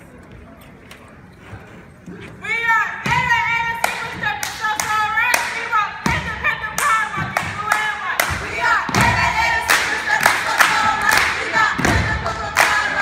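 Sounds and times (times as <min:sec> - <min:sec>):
hand claps: 0:06.8 - 0:13.0.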